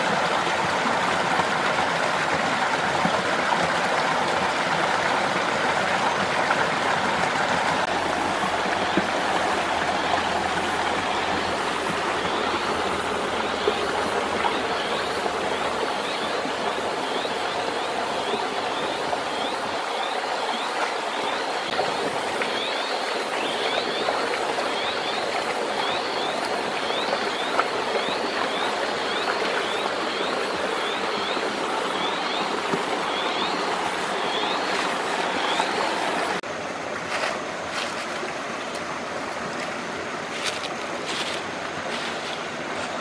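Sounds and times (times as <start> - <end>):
water flowing over rocks: 0.0 - 43.0.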